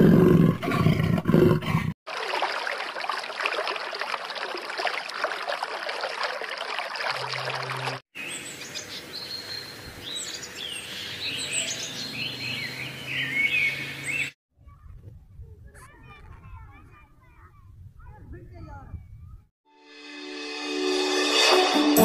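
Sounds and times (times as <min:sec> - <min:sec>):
aquarium water bubbling: 0:02.1 - 0:08.0
birds chirping: 0:07.2 - 0:14.4.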